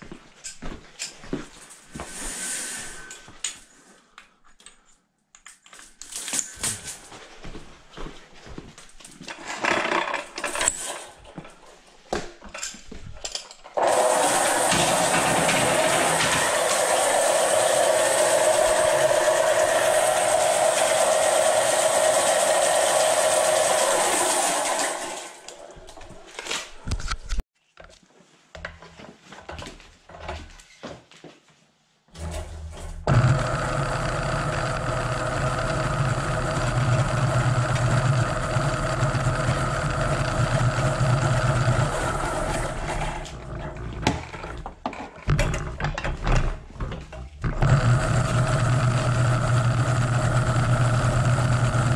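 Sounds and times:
drain-cleaning machine motor running: 13.8s - 25.8s, 32.2s - 43.8s, 47.4s - 51.9s.

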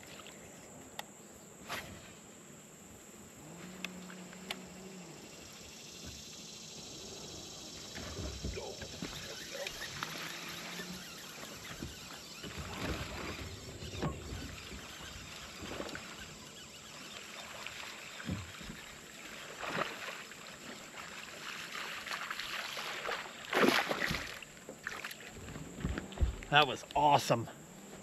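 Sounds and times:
water lapping against hull: 5.4s - 26.6s
small splashes: 7.9s - 25.4s.

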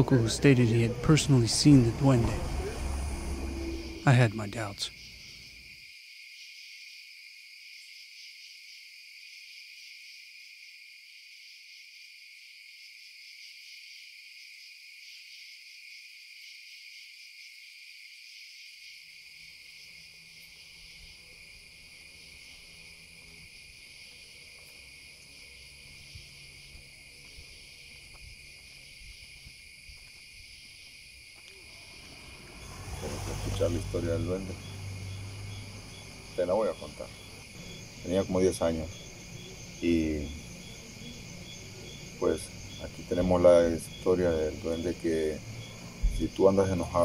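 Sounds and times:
crickets chirring: 0.0s - 47.0s.

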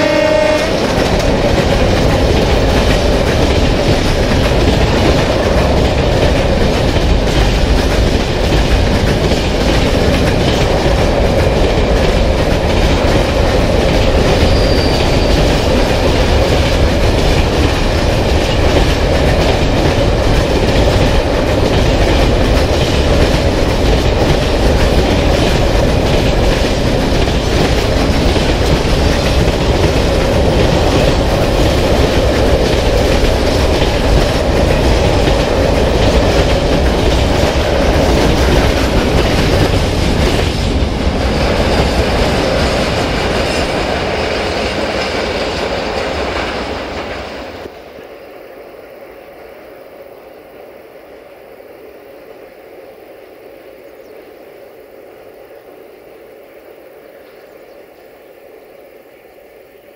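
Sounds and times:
train wheels clattering on track: 0.0s - 47.8s.

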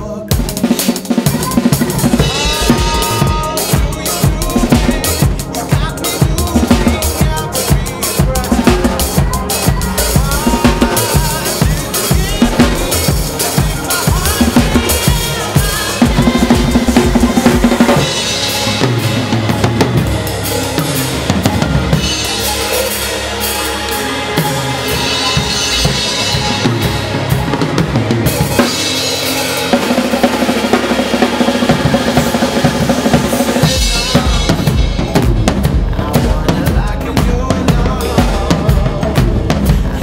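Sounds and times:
drum kit played busily: 0.0s - 40.0s
backing track held tones: 1.4s - 31.5s.

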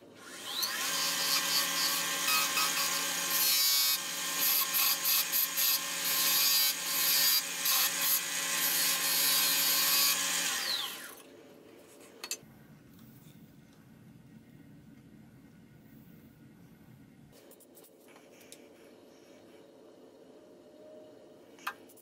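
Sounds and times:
chisel cutting wood: 0.2s - 11.1s
wood lathe motor hum: 0.2s - 11.2s.

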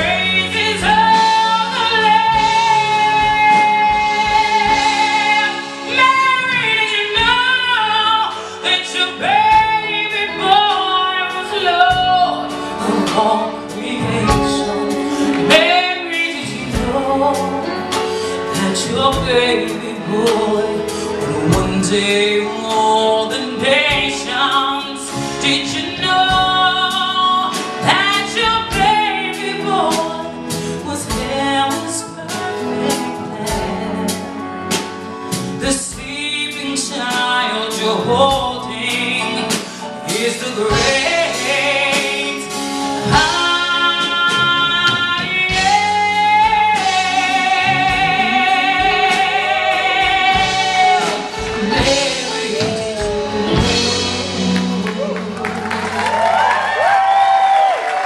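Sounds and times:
woman singing into a microphone: 0.0s - 55.6s
bass guitar: 0.0s - 58.0s
electric guitar: 0.0s - 58.0s
piano: 0.0s - 58.0s.

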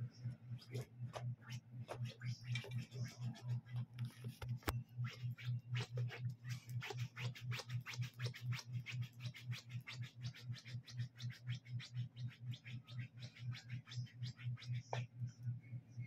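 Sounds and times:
low pulsing hum: 0.0s - 16.0s.

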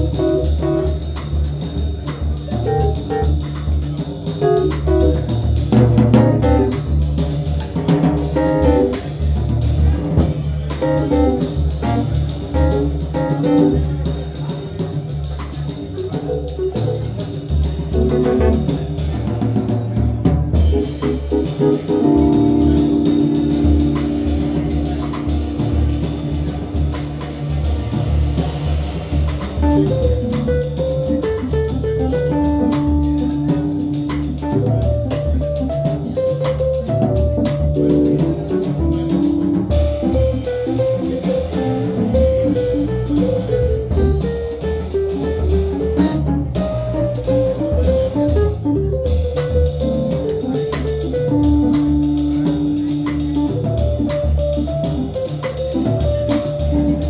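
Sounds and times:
double bass notes: 0.0s - 57.0s
drum kit playing: 0.0s - 57.0s
keyboard chords and melody: 21.8s - 26.7s.

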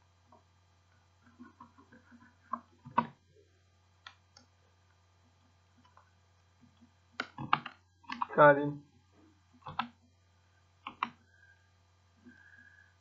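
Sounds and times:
computer keyboard key clicks: 7.2s - 8.3s, 9.6s - 10.0s, 10.8s - 11.2s.

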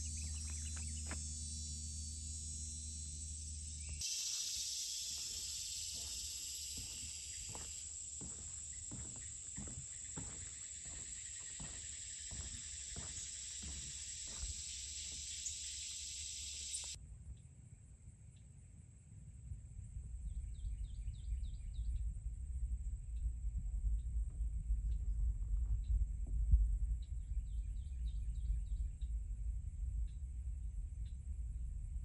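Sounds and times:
insect chorus: 0.0s - 17.0s
footsteps on wooden boardwalk: 4.7s - 16.1s.

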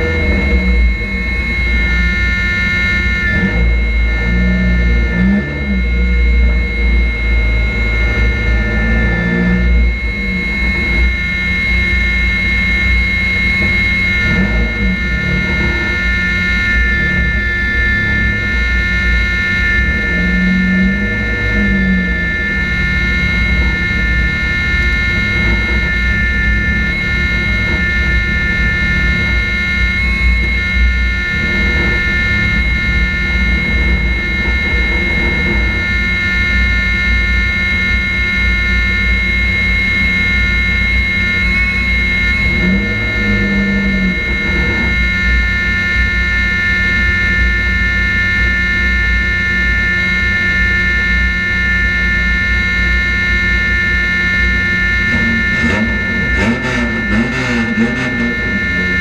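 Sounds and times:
race car engine running: 0.0s - 59.0s
wavering tone: 0.0s - 59.0s.

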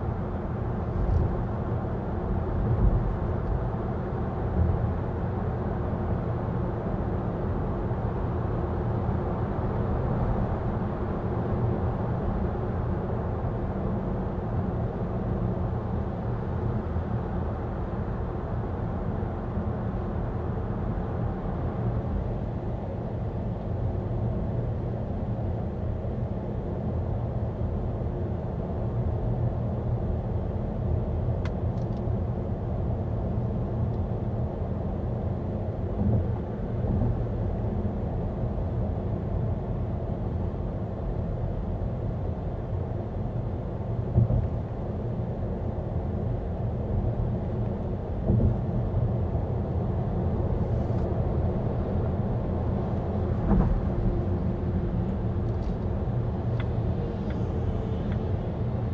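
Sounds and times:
tyre and road rumble: 50.4s - 58.9s.

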